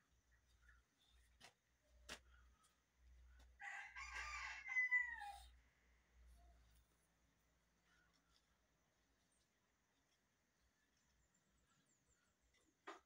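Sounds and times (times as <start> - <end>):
rooster crowing: 3.6 - 5.6.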